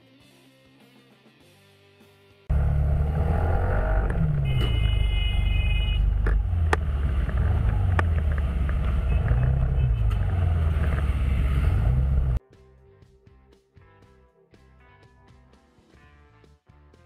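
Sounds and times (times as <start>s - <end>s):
road noise: 2.5s - 12.4s
vehicle engine rumble: 2.5s - 12.4s.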